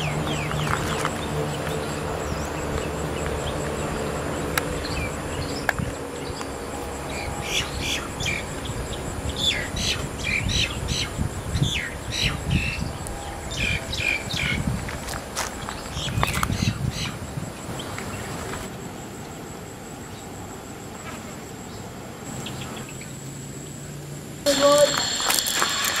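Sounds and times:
birds chirping: 0:00.0 - 0:20.4, 0:21.6 - 0:23.2
faint high steady tone: 0:24.4 - 0:26.0.

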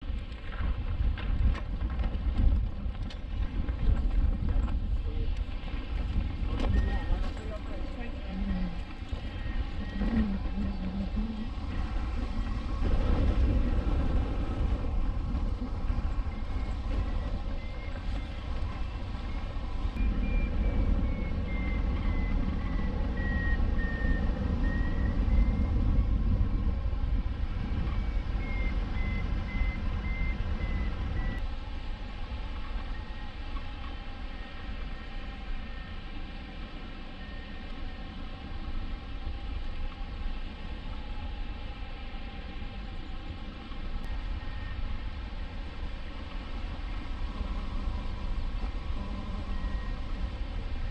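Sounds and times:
wind rushing over microphone: 0:00.0 - 0:50.9
faint beeping tone: 0:06.6 - 0:12.6, 0:15.7 - 0:26.8, 0:27.6 - 0:31.4, 0:37.0 - 0:38.1, 0:44.0 - 0:45.4, 0:47.2 - 0:50.9.

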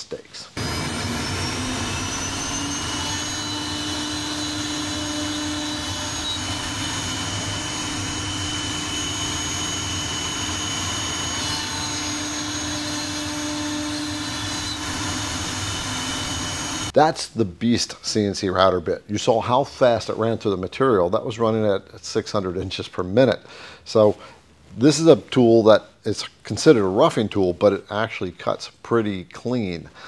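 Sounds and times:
bit cutting plywood: 0:00.6 - 0:16.9
router spindle whining: 0:00.6 - 0:16.9.

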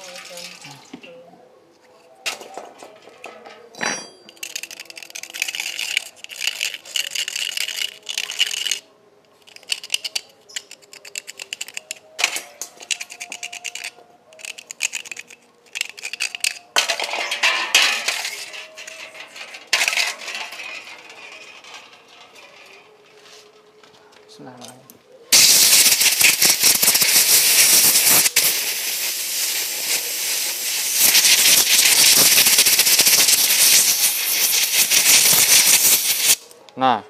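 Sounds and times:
metallic clinks and rattles: 0:02.5 - 0:23.6
scrubbing metal engine parts: 0:09.4 - 0:23.6.

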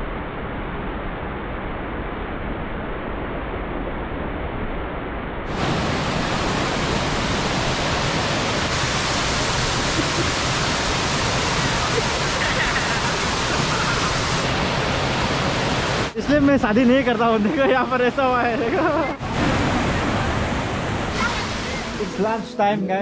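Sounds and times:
waterfall rushing over rocks: 0:05.5 - 0:22.5.

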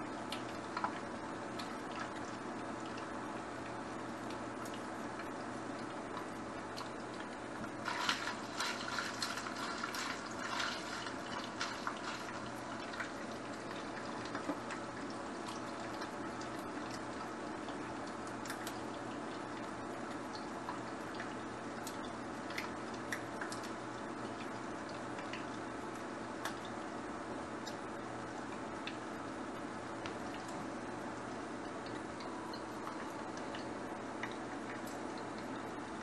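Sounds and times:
pot of water boiling: 0:00.0 - 0:36.0
pasta stirred in pot: 0:07.8 - 0:14.4.

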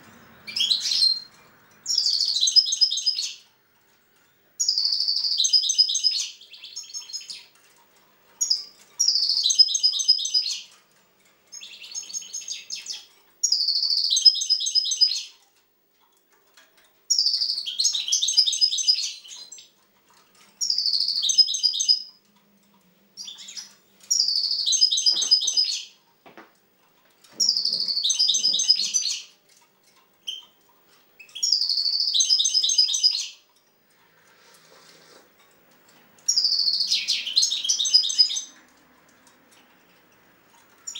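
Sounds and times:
goldfinch twittering song: 0:00.1 - 0:03.5, 0:04.2 - 0:07.6, 0:08.4 - 0:10.8, 0:11.5 - 0:15.4, 0:17.1 - 0:19.8, 0:20.6 - 0:22.3, 0:23.2 - 0:26.0, 0:27.3 - 0:29.4, 0:30.2 - 0:30.6, 0:31.2 - 0:33.5, 0:36.3 - 0:38.6.

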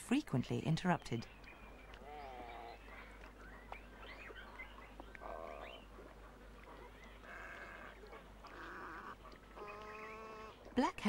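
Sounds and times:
small birds chirping: 0:00.6 - 0:11.0
wading birds harsh nasal calls: 0:01.9 - 0:03.4, 0:05.1 - 0:10.9.

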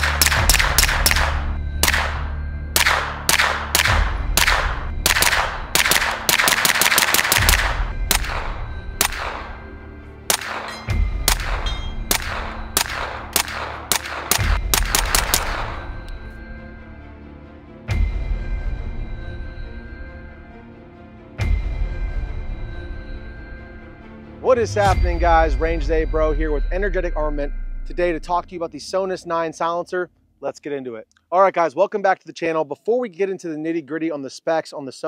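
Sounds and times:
suppressed gunshots: 0:00.0 - 0:09.7, 0:10.3 - 0:16.0
background music with bass hits: 0:00.0 - 0:29.2.

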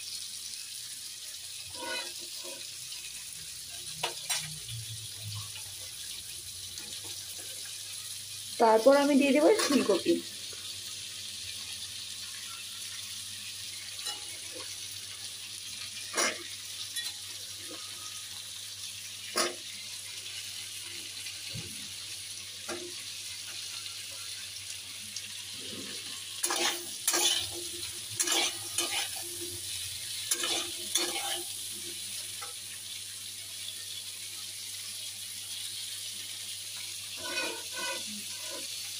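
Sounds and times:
vegetables sizzling in a pan: 0:00.0 - 0:38.9
spatula scraping a pan: 0:01.6 - 0:03.2, 0:09.4 - 0:10.1, 0:16.0 - 0:18.1, 0:19.4 - 0:19.7, 0:25.5 - 0:32.6, 0:37.1 - 0:38.9.

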